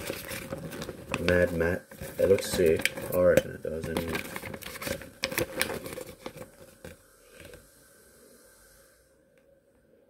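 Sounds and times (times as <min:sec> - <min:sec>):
packaging crinkling and rustling: 0:00.0 - 0:07.6.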